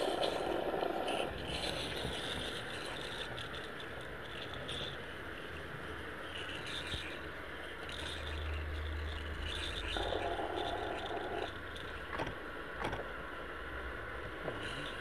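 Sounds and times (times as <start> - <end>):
steam locomotive hissing: 0.0 - 3.4.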